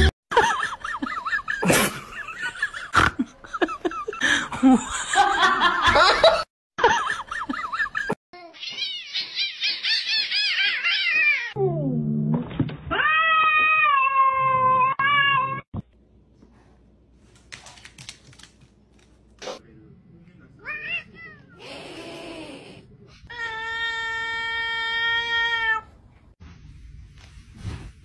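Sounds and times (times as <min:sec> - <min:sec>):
cats meowing and yowling: 0:08.4 - 0:11.6, 0:12.9 - 0:15.7.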